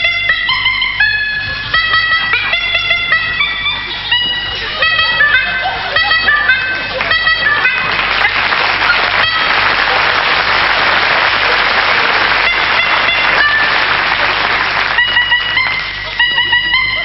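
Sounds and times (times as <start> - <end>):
squeaky bulb horn: 0.0 - 17.0
audience applauding: 4.8 - 17.0.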